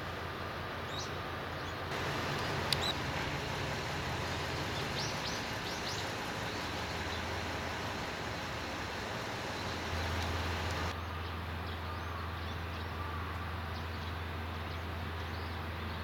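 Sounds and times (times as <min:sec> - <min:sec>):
birds chirping: 0:00.9 - 0:11.0
diesel engine idling: 0:01.9 - 0:11.0.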